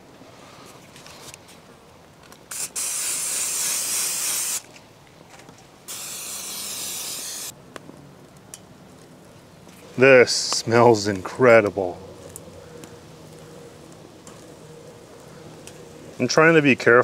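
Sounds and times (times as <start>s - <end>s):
aerosol spray hissing: 2.5s - 4.6s, 5.9s - 7.5s.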